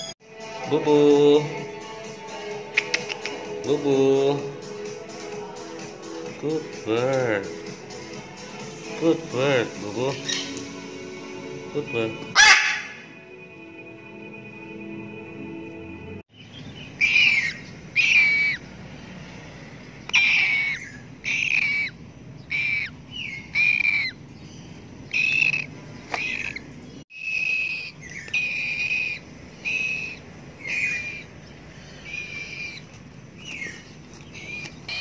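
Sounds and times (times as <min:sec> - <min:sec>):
parrot chick calling: 0:10.1 - 0:10.6, 0:12.3 - 0:13.1, 0:16.8 - 0:18.7, 0:20.1 - 0:35.0.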